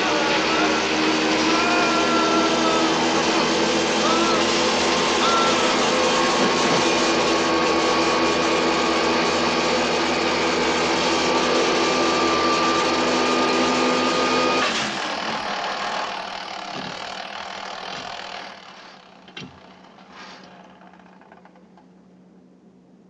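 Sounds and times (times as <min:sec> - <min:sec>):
electrical machine buzzing and humming: 0:00.0 - 0:22.0.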